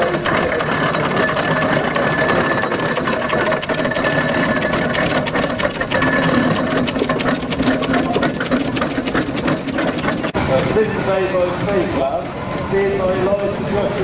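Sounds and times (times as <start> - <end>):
steam engine mechanical clatter: 0.0 - 10.4.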